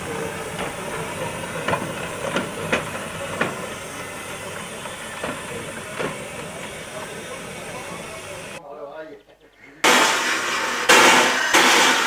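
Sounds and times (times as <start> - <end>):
steam hissing: 0.0 - 8.6, 9.9 - 12.0
steam locomotive moving slowly: 0.0 - 8.6, 9.8 - 12.0
sharp metallic clanks: 9.8 - 12.0.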